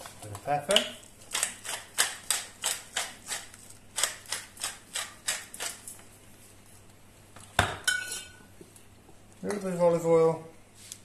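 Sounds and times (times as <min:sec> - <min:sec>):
pepper mill grinding: 0:01.3 - 0:06.0.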